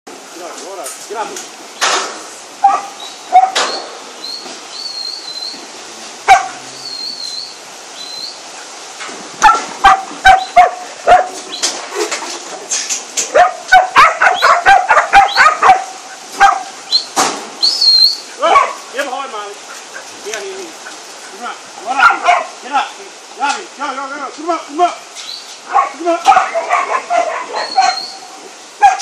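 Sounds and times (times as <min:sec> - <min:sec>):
dog barking: 0:02.6 - 0:03.6, 0:06.3 - 0:06.6, 0:09.4 - 0:11.4, 0:13.3 - 0:16.7, 0:18.4 - 0:18.8, 0:21.9 - 0:22.6, 0:25.7 - 0:28.1, 0:28.8 - 0:29.0.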